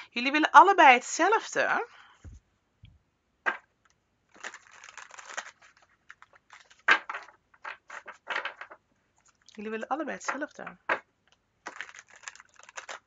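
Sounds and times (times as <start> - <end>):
cards shuffling: 4.4 - 9.6, 10.3 - 13.0.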